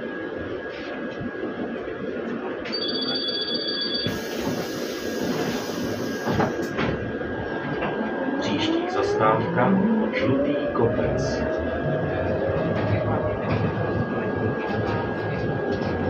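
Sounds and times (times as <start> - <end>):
bus interior noise: 0.0 - 16.0
two-tone electronic ringing: 2.7 - 4.2.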